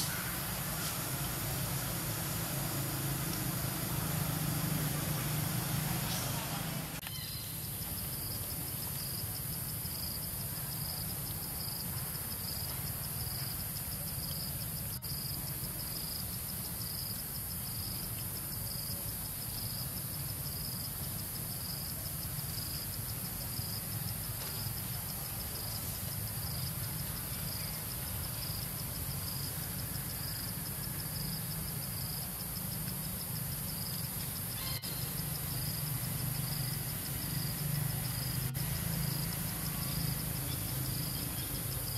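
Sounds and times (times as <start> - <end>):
insect chirp: 0.0 - 41.9
insects hissing: 0.0 - 41.9.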